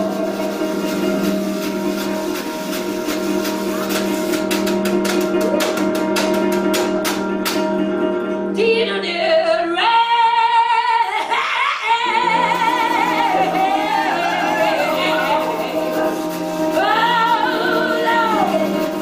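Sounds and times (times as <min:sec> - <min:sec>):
woman singing with vibrato: 0:08.6 - 0:19.0.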